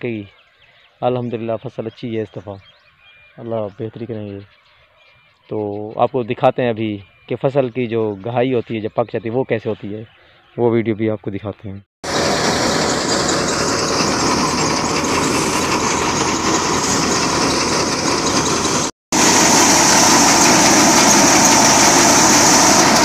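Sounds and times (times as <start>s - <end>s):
thresher engine and machine din: 12.0s - 23.0s.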